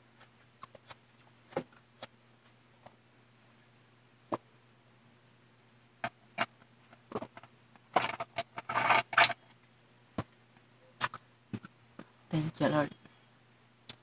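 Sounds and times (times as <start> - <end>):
mouth clicks and smacks: 11.0 - 12.1.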